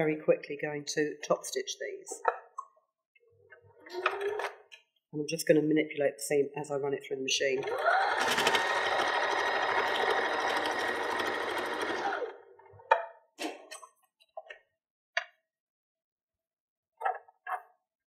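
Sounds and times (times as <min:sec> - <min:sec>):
electric sewing machine stitching: 0:07.6 - 0:12.6.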